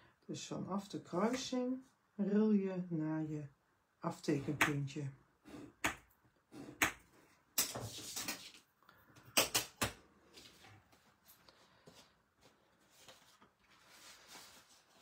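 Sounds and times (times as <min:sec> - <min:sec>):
paper sliding and rustling: 0:12.8 - 0:15.0.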